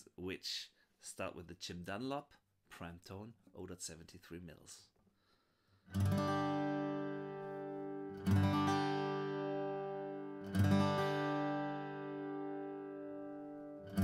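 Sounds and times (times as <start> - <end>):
acoustic guitar chords strummed: 5.9 - 14.0.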